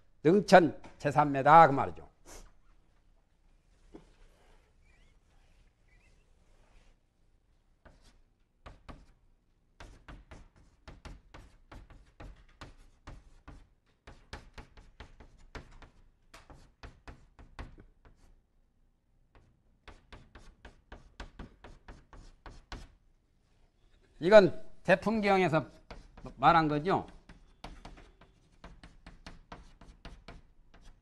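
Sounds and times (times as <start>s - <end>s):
chalk writing on blackboard: 4.2s - 7.0s, 7.8s - 9.2s, 9.8s - 18.4s, 19.3s - 23.0s, 25.1s - 31.0s.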